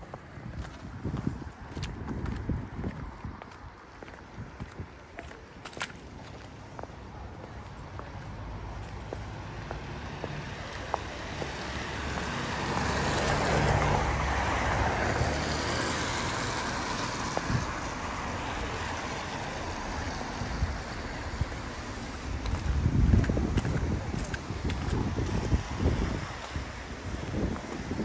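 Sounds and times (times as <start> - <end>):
car tyres hissing on wet road: 9.5 - 22.5.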